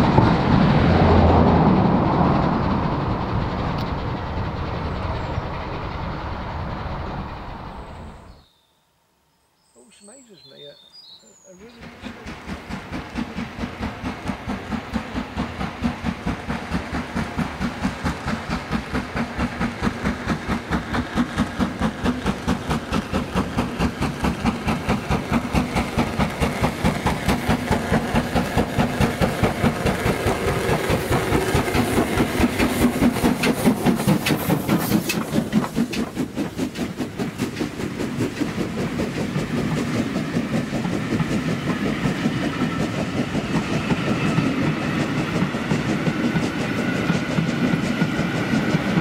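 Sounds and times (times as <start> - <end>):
steam locomotive chuffing: 0.0 - 8.4, 9.8 - 49.0
steam hiss: 11.6 - 49.0.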